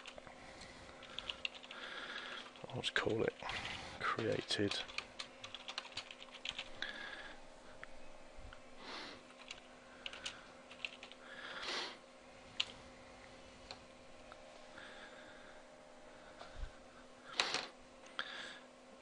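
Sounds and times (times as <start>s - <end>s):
faint steady hum: 0.0s - 19.0s
computer keyboard keystrokes: 1.0s - 1.7s, 2.5s - 6.7s, 9.3s - 11.2s.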